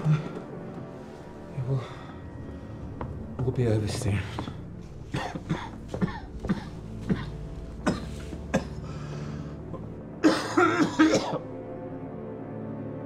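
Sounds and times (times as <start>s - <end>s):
man coughing: 5.1s - 8.8s, 10.2s - 11.4s.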